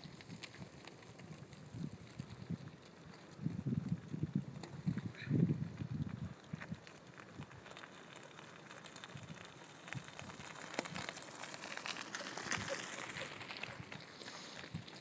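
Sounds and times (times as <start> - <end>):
bicycle tyres crunching on gravel: 0.0 - 15.0
footsteps crunching on gravel: 3.2 - 15.0.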